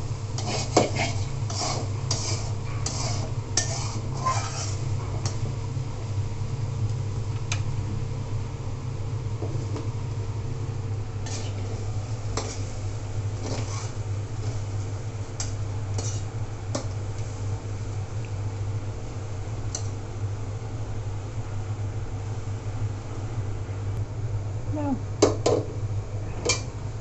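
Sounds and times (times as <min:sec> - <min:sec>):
steady low hum: 0:00.0 - 0:27.0
metal spatula scraping a pan: 0:00.4 - 0:05.4, 0:11.2 - 0:11.6, 0:13.4 - 0:14.6, 0:15.9 - 0:16.3.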